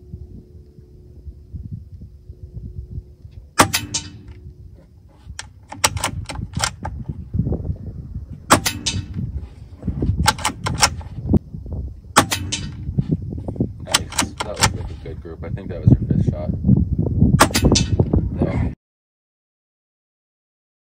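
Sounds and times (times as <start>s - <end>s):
air rifle shot cracks: 3.6s - 4.4s, 8.5s - 9.2s, 12.2s - 12.8s, 17.4s - 18.0s
quick clicks: 5.3s - 7.0s, 10.2s - 11.1s.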